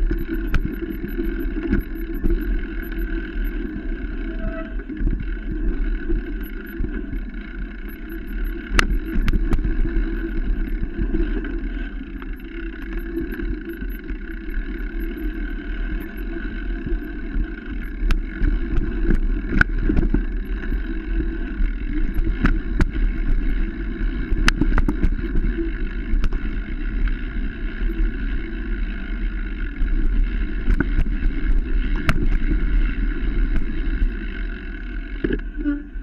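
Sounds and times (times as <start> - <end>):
bike rattling: 0.0 - 35.6.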